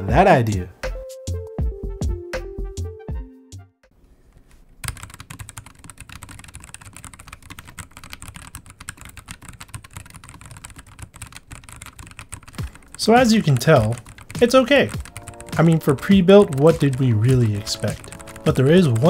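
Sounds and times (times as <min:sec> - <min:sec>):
fast mechanical keyboard typing: 0:04.8 - 0:19.0.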